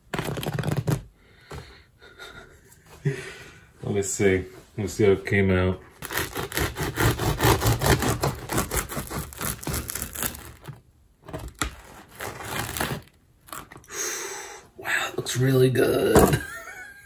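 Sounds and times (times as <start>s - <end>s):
bread knife sawing crust: 6.0s - 10.5s.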